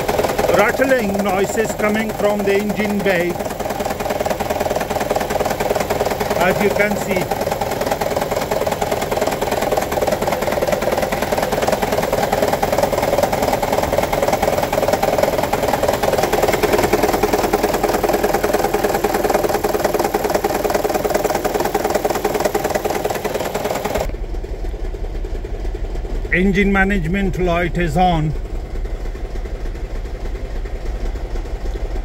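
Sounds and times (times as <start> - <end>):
engine rattling: 0.0 - 32.0
low hum: 0.0 - 32.0.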